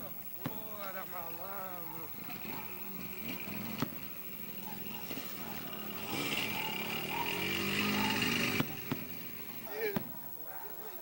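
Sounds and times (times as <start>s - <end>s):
firework hissing: 0.0s - 10.4s
firework bang: 3.7s - 4.2s, 8.4s - 10.2s.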